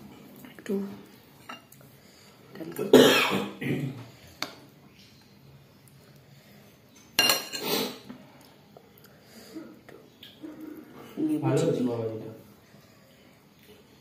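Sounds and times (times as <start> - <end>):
spoon scraping a plate: 7.0 - 8.0.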